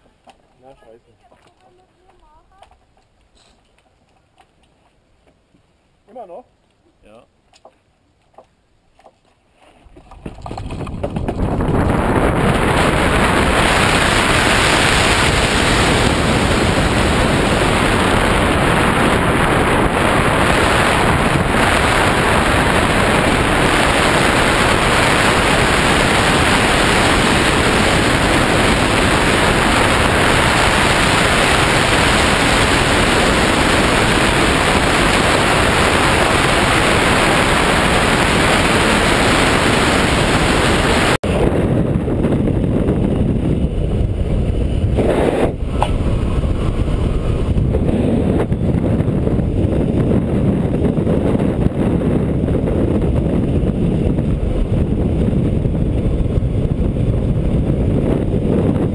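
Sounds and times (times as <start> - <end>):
wind rushing on camera: 9.8 - 58.9.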